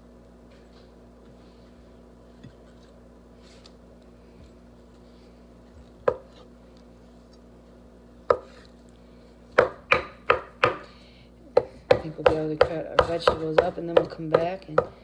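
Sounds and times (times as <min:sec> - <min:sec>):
knife chopping on wooden board: 0:06.0 - 0:06.4, 0:08.3 - 0:08.6, 0:09.6 - 0:10.9, 0:11.6 - 0:15.0.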